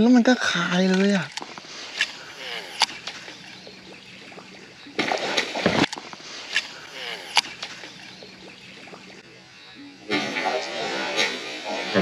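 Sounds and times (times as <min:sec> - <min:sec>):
water sloshing: 0:00.5 - 0:12.0
sharp clicks: 0:00.8 - 0:04.6, 0:05.4 - 0:08.5.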